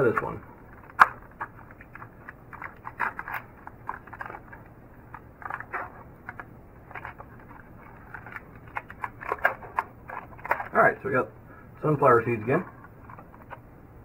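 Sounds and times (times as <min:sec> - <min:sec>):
plastic packaging crinkling: 0:00.2 - 0:10.8
sharp plastic clicks: 0:00.8 - 0:04.5.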